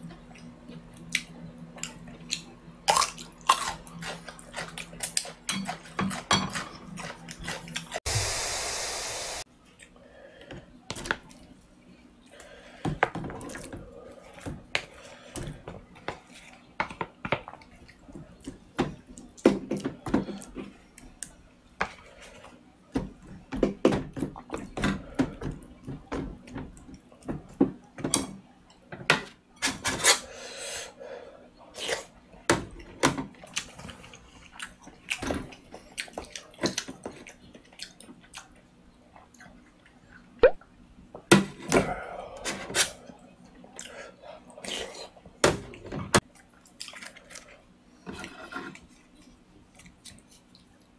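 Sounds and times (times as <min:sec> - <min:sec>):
hiss-like noise burst: 0:08.1 - 0:09.4.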